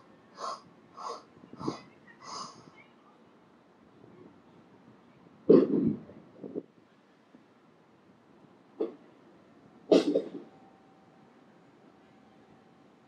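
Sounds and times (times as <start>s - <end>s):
person coughing: 9.9s - 10.4s.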